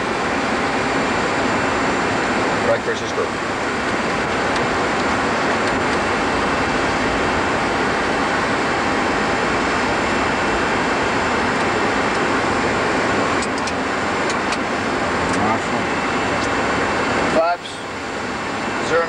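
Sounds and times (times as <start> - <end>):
airplane cockpit rushing noise: 0.0 - 19.0.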